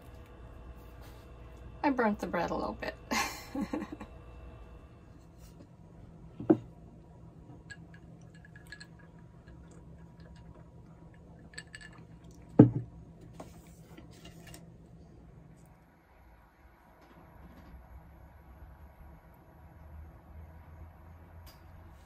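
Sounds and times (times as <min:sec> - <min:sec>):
low steady hum: 0:00.0 - 0:22.0
faint clinks: 0:07.6 - 0:12.5
glass knocking on table: 0:12.6 - 0:12.9
plate knocking on wooden table: 0:12.6 - 0:12.9.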